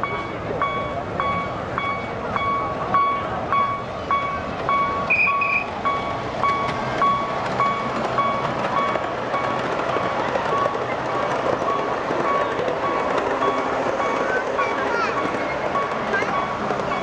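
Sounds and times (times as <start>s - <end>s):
high electronic warning beeps: 0.0s - 12.4s.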